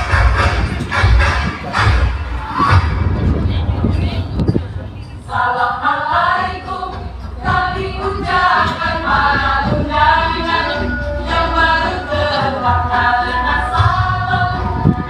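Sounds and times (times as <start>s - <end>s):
group of young voices singing: 5.1s - 15.0s.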